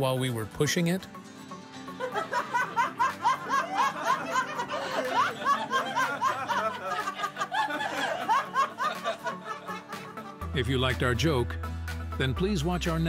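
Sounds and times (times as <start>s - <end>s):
person laughing: 2.1s - 10.3s.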